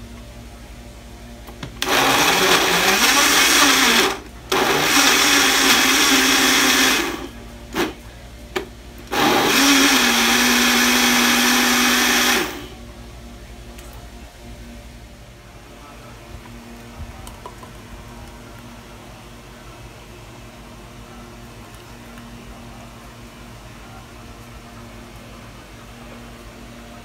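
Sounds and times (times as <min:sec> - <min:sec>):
electric blender motor: 0:01.8 - 0:08.0, 0:09.1 - 0:12.8.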